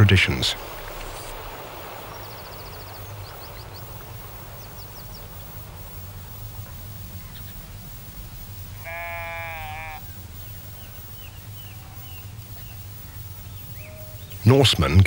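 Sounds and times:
steady low rumble: 0.0 - 14.4
songbird trilling and chirping: 0.3 - 14.7.

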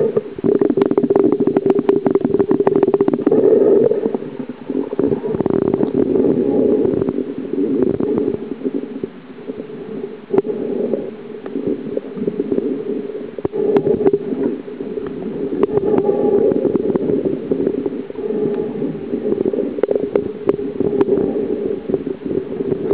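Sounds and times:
sharp underwater clicks: 0.0 - 6.1
low underwater rumble: 0.0 - 22.9.

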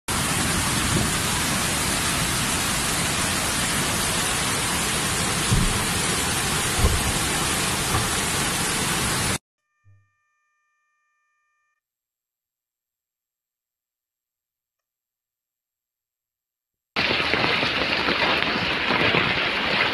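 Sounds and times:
floodwater rushing down street: 0.1 - 9.4, 17.0 - 19.9
dull thumps: 5.4 - 6.0, 6.7 - 8.3.

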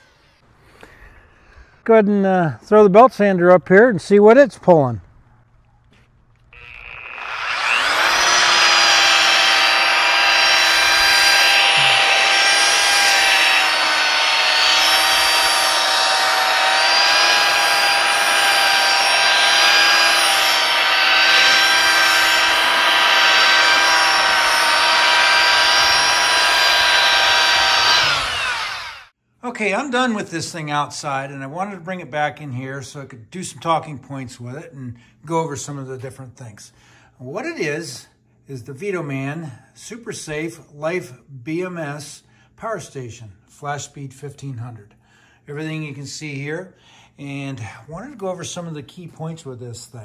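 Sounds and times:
belt sander whining: 6.5 - 29.1.

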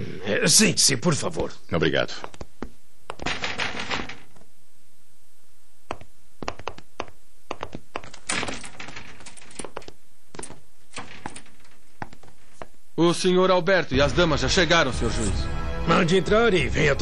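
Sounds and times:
papers rustling: 6.4 - 12.8.

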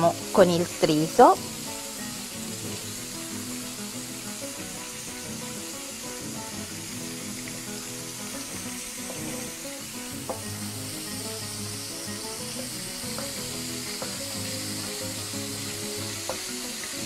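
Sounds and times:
fish sizzling in a pan: 0.0 - 17.0
knife tapping cutting board: 9.0 - 9.5, 10.2 - 10.5, 13.1 - 14.2, 16.2 - 16.5.

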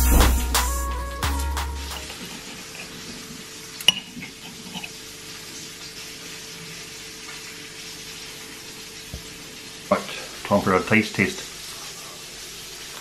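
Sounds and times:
background music: 0.0 - 2.2.

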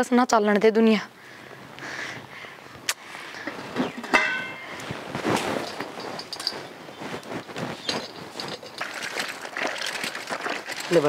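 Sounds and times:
objects knocking and clattering: 3.4 - 11.0
short ringing clink: 4.1 - 4.8.

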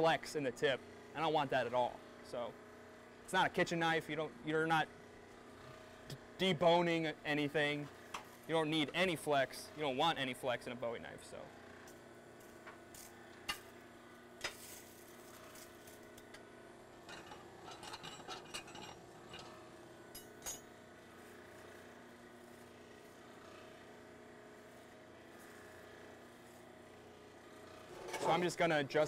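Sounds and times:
tongs clinking and scraping: 17.1 - 19.5.

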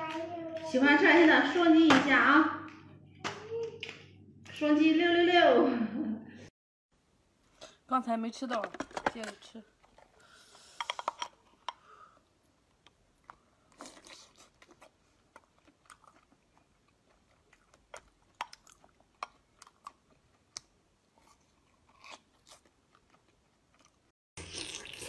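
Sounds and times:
person chewing and crunching: 13.2 - 25.0.

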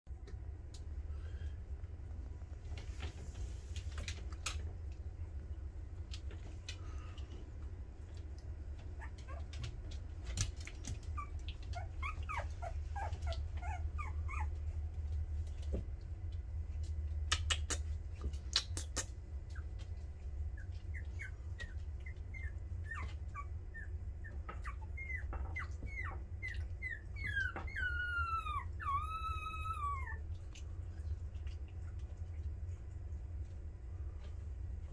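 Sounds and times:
steady low hum: 0.1 - 34.9
puppies whimpering: 8.8 - 9.7, 10.7 - 14.8, 20.5 - 30.4.

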